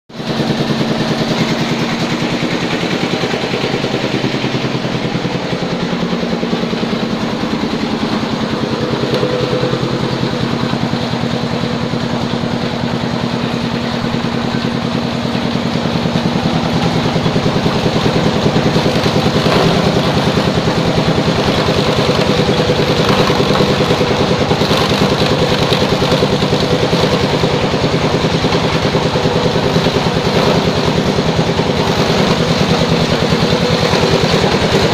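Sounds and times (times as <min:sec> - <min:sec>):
meat grinder engine running: 0:00.1 - 0:34.9.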